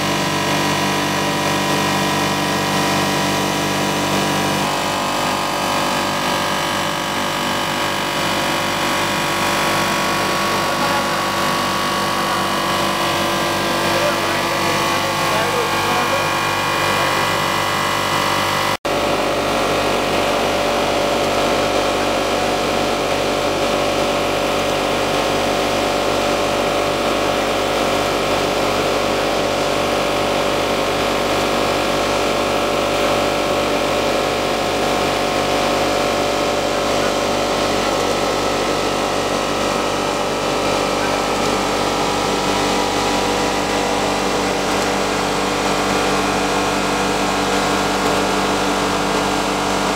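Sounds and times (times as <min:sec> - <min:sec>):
machine hum and motor whine: 0:00.0 - 0:49.9.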